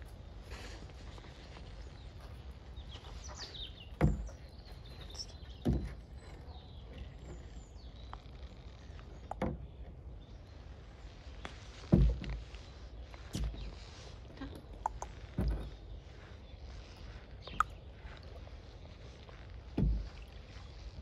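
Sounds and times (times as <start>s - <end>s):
faint birds chirping: 0.0s - 21.0s
paddle knocking on kayak hull: 11.9s - 12.5s, 19.7s - 20.3s.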